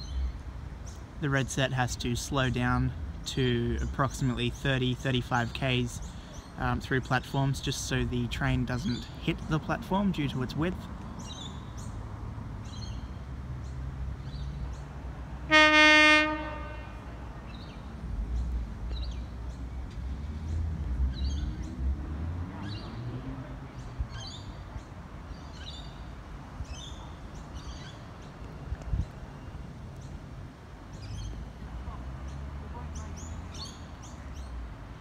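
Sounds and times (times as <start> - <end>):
birds chirping: 0.0 - 35.0
train horn blast: 15.4 - 17.3.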